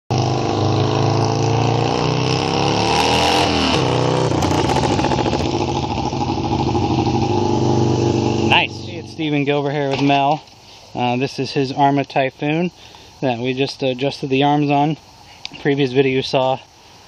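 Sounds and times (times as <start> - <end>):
motorcycle engine passing by: 0.1 - 9.5.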